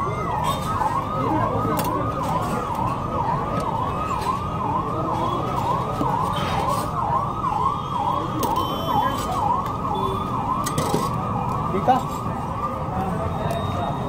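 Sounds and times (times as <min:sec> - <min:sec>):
siren-like warbling tone: 0:00.0 - 0:12.2
street noise hum: 0:00.0 - 0:14.0.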